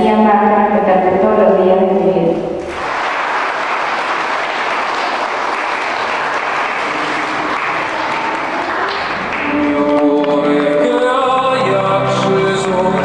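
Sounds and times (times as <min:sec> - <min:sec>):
crowd applauding: 0:02.7 - 0:13.0.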